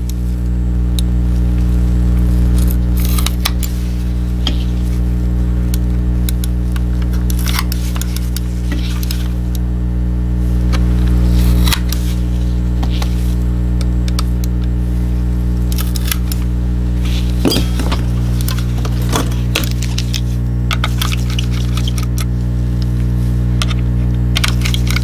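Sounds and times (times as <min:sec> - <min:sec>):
steady low hum: 0:00.0 - 0:25.0
metal pick clicking and scraping plastic: 0:05.7 - 0:09.6, 0:15.7 - 0:16.5, 0:17.1 - 0:23.0, 0:23.6 - 0:25.0.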